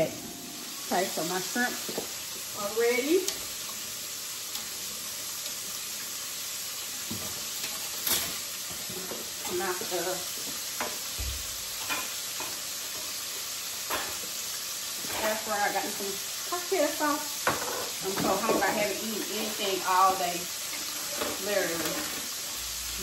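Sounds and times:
food sizzling in a skillet: 0.0 - 23.0.

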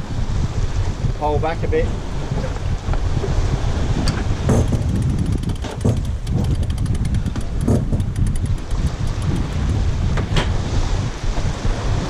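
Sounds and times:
water rushing along hull: 0.0 - 12.0
wind buffeting microphone: 0.0 - 12.0
knocks and clicks: 4.1 - 10.5.

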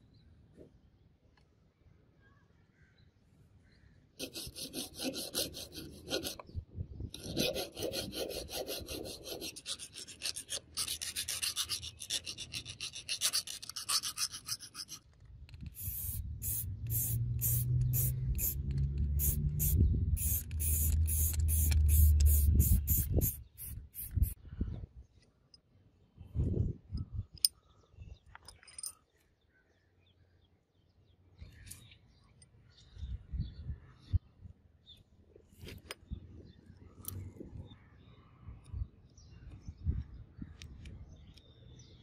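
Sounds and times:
file rasping in steel hole: 4.2 - 6.5, 7.1 - 15.0
spray can hissing bursts: 15.8 - 24.4.

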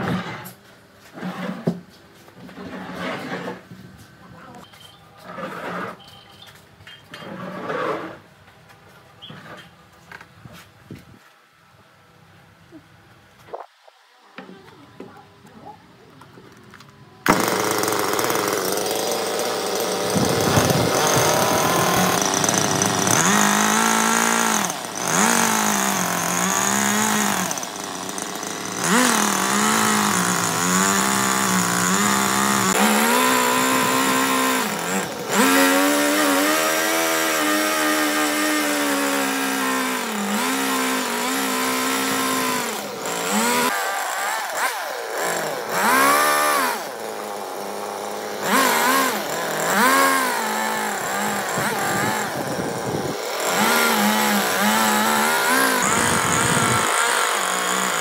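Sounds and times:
chainsaw cutting log: 17.2 - 58.0.

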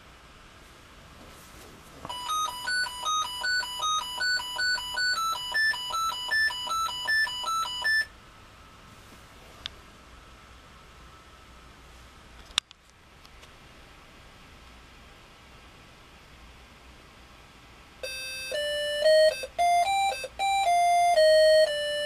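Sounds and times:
electronic square-wave beep melody: 2.1 - 8.1, 18.0 - 22.0.

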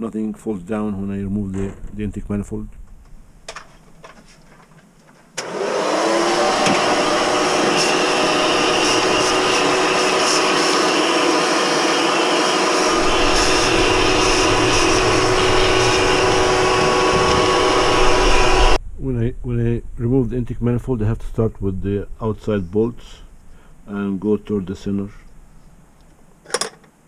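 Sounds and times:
vacuum cleaner motor whine: 5.4 - 18.8.

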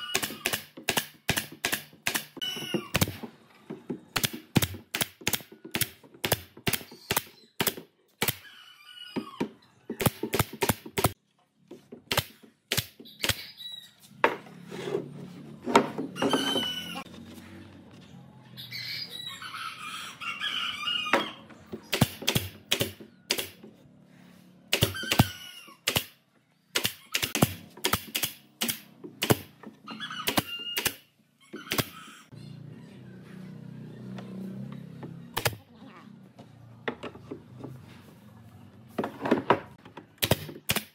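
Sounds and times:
nail gun firing into wood: 0.1 - 3.3, 4.2 - 8.4, 10.0 - 11.2, 12.1 - 13.4, 21.9 - 23.6, 24.7 - 29.6, 30.2 - 31.0, 35.4 - 35.6, 40.2 - 40.9.

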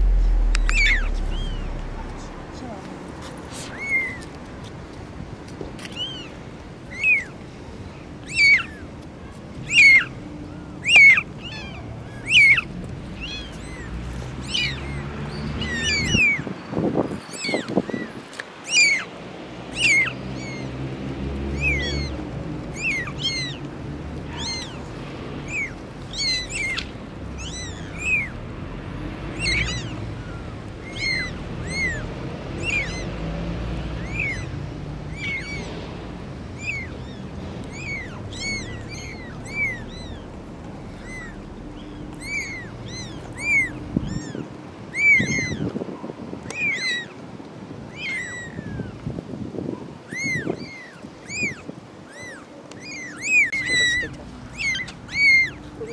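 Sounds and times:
lower longer sound: 0.0 - 3.5
kittens mewing: 35.1 - 35.7, 36.6 - 44.4, 50.1 - 55.9.

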